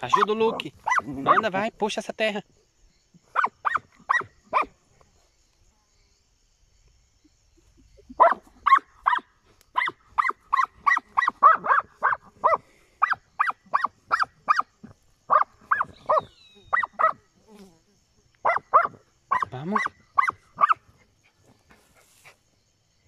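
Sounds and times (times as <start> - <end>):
dog barking rapidly: 0.0 - 1.6, 3.3 - 4.8, 8.2 - 17.2, 18.4 - 20.9.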